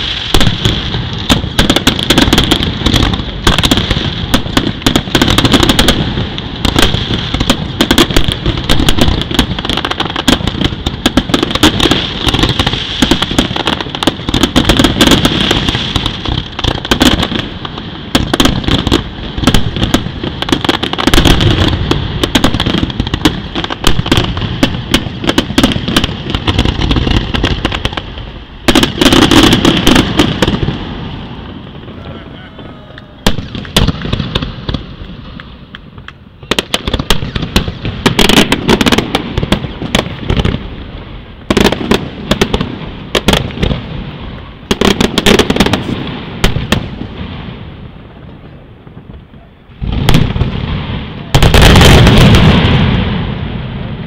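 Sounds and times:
firework shells bursting: 0.0s - 30.9s, 33.0s - 40.6s.

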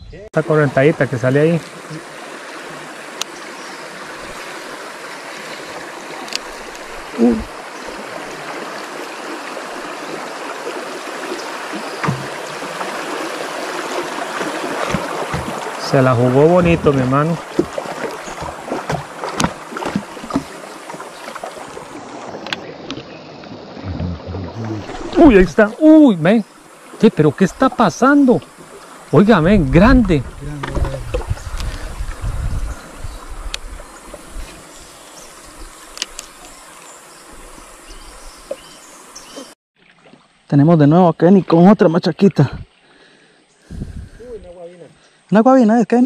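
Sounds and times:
water sloshing around boat: 0.5s - 40.4s
insects buzzing drone: 0.8s - 15.8s, 26.2s - 29.3s, 32.7s - 39.5s.

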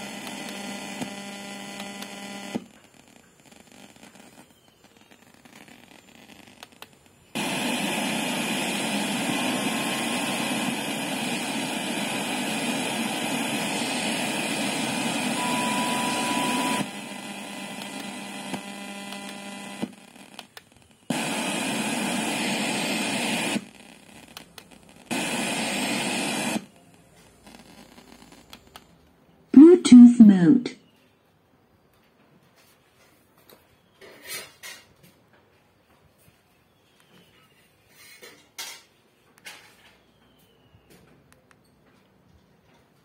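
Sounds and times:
radio static hiss: 0.0s - 28.9s, 29.6s - 30.8s
brief steady tone: 15.3s - 16.9s.

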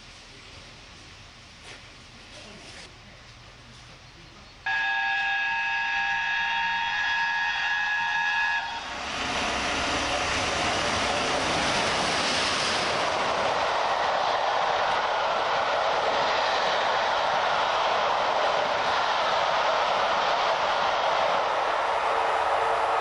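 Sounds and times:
steam locomotive whistle: 4.7s - 9.7s, 21.5s - 23.0s
train rushing past: 4.7s - 23.0s.

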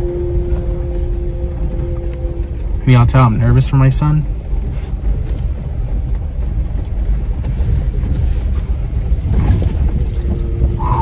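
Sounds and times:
vehicle engine low rumble: 0.0s - 11.0s.

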